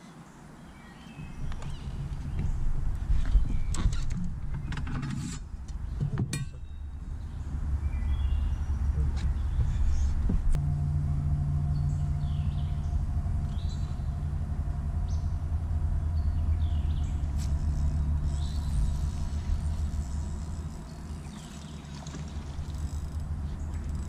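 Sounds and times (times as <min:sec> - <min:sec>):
birds chirping: 0:00.0 - 0:04.9, 0:05.7 - 0:10.5, 0:11.6 - 0:24.0
steady low rumble: 0:00.6 - 0:24.0
electric motor humming: 0:12.8 - 0:24.0.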